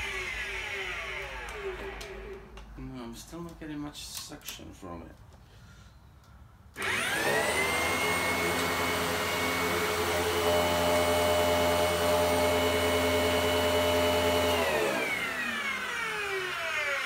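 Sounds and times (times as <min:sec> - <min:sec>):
vacuum cleaner motor whine: 0:00.0 - 0:02.6, 0:06.8 - 0:17.0.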